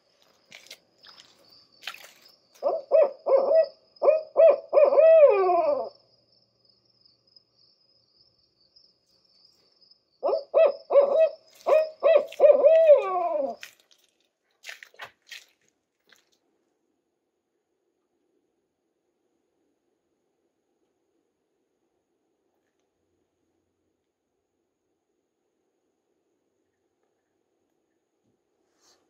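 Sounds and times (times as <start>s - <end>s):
owl hooting call: 2.6s - 6.0s, 10.2s - 13.6s.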